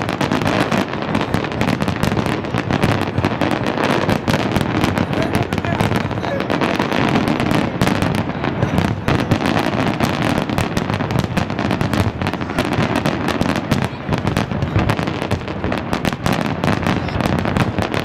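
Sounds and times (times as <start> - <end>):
fireworks bursting and crackling: 0.0 - 18.0.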